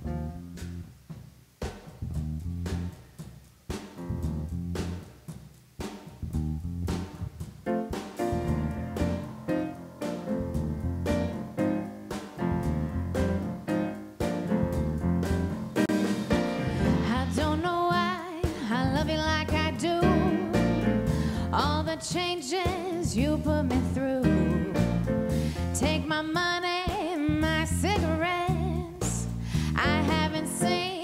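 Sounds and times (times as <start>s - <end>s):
instrumental backing with bass: 0.0s - 26.6s, 27.3s - 31.0s
person singing with vibrato: 16.7s - 20.9s, 29.6s - 31.0s.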